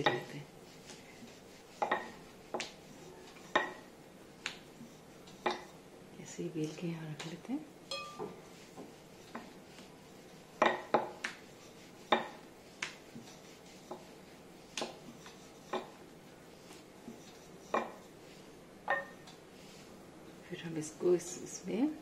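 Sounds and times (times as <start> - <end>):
rolling pin knocking on board: 12.1 - 12.4.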